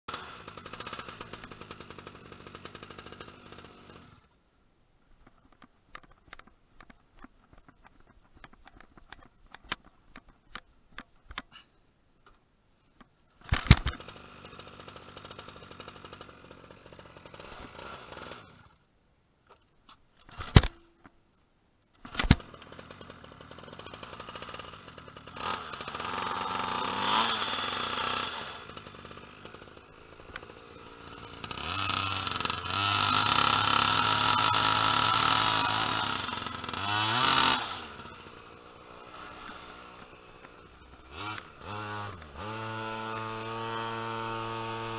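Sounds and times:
small two-stroke engine running: 0:00.1 - 0:04.3, 0:13.6 - 0:18.8, 0:22.1 - 0:44.9.

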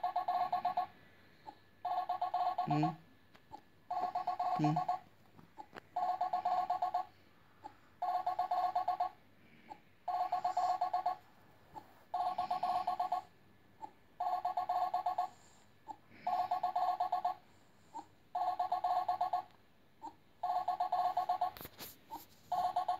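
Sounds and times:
warbling telephone ring: 0:01.8 - 0:02.9, 0:06.0 - 0:07.1, 0:08.0 - 0:09.2, 0:12.1 - 0:13.3, 0:18.4 - 0:19.5, 0:20.4 - 0:21.5.

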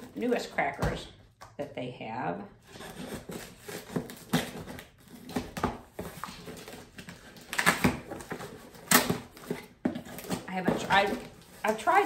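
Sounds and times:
cardboard scraping and rustling: 0:02.6 - 0:12.0
scissors slitting packing tape: 0:02.8 - 0:10.4.

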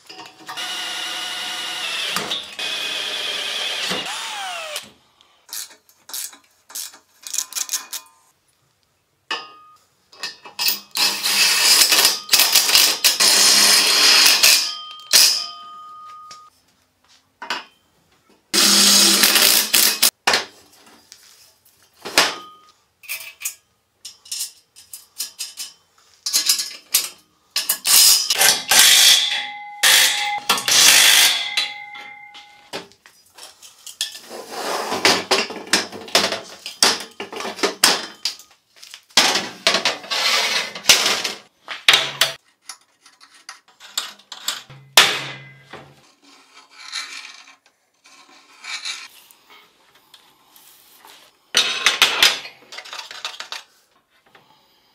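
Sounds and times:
scraping and rubbing: 0:33.4 - 0:35.2, 0:39.9 - 0:41.2, 0:46.0 - 0:49.3.

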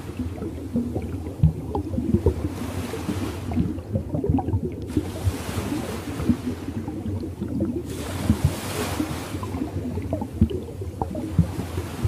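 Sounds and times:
low bubbling churn: 0:00.0 - 0:12.0
ocean waves washing in: 0:02.0 - 0:10.1, 0:11.1 - 0:12.0.

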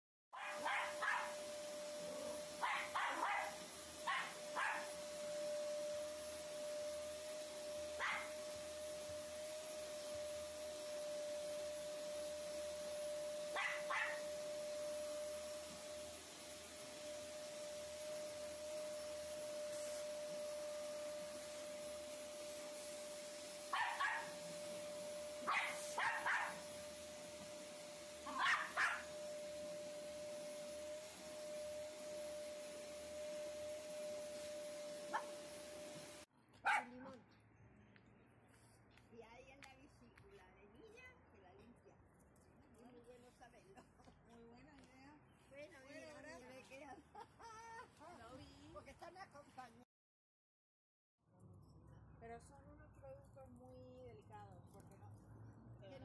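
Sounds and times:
vacuum cleaner whine: 0:00.3 - 0:36.3
dogs barking: 0:00.4 - 0:01.4, 0:02.6 - 0:04.9, 0:08.0 - 0:08.3, 0:13.6 - 0:14.2, 0:23.7 - 0:24.4, 0:25.4 - 0:26.6, 0:28.3 - 0:29.1, 0:36.6 - 0:36.9.

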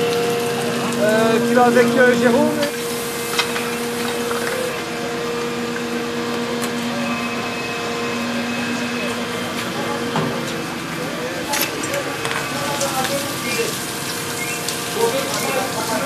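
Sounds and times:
motor drone: 0:00.0 - 0:11.4.

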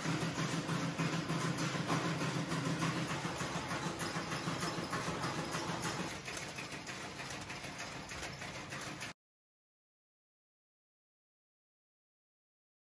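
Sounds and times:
machine humming and rattling: 0:00.0 - 0:09.2.

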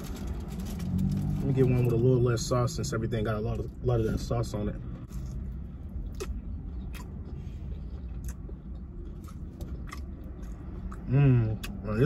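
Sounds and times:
chewing crispy food: 0:00.0 - 0:02.0, 0:05.0 - 0:12.0.

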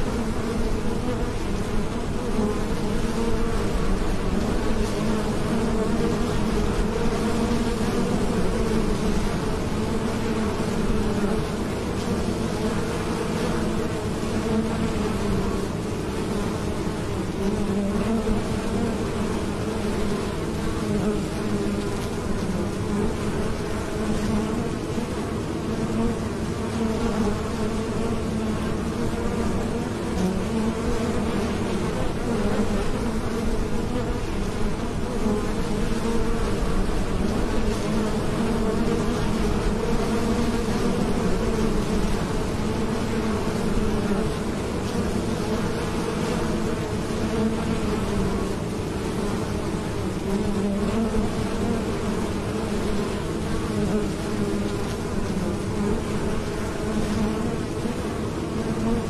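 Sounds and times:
honey bees buzzing: 0:00.0 - 0:59.0.

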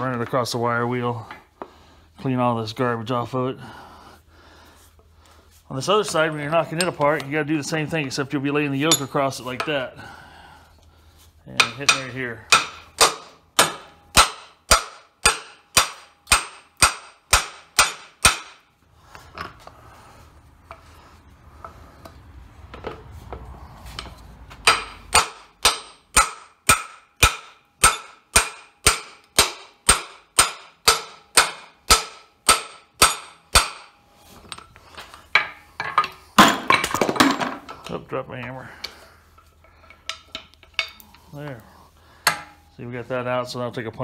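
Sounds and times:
hammer striking metal: 0:11.6 - 0:18.6, 0:24.0 - 0:34.0, 0:42.2 - 0:42.6.

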